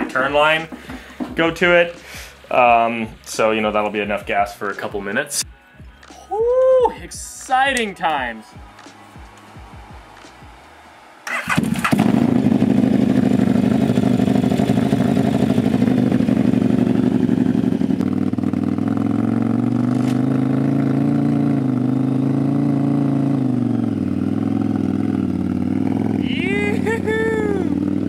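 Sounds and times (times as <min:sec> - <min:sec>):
motorcycle engine starting and idling: 0:00.0 - 0:04.8, 0:11.2 - 0:28.0.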